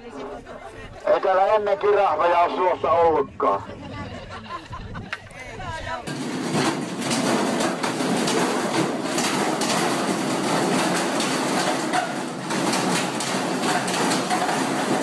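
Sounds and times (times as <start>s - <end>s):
washing machine banging and rattling: 6.1s - 15.0s.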